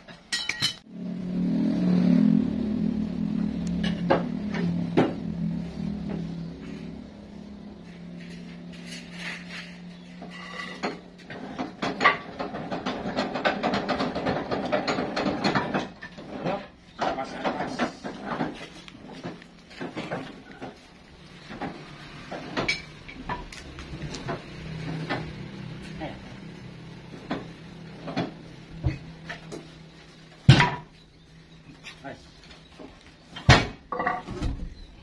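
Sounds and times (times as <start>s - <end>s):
wood and metal clattering: 7.9s - 35.0s.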